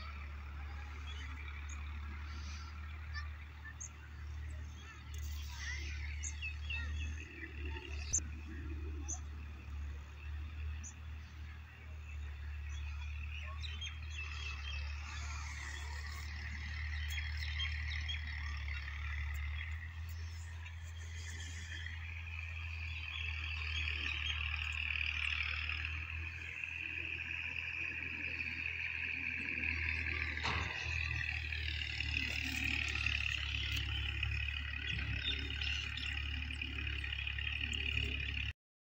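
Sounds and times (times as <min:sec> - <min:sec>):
low steady hum: 0:00.0 - 0:38.5
small birds chirping: 0:00.0 - 0:38.5
steady low rumble: 0:12.0 - 0:38.2
frogs and insects chorus: 0:20.7 - 0:38.5.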